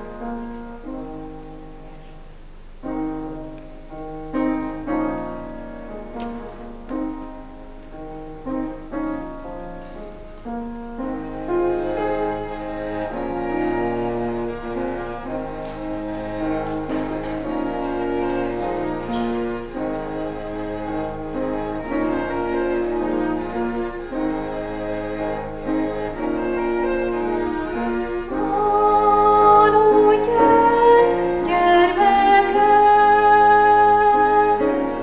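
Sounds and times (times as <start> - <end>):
string ensemble slow chords: 0.0 - 35.0
woman singing: 28.3 - 35.0.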